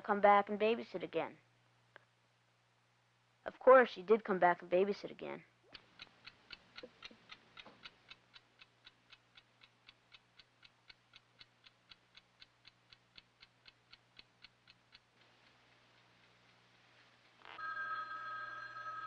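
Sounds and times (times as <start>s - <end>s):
chess clock ticking: 5.7s - 17.4s.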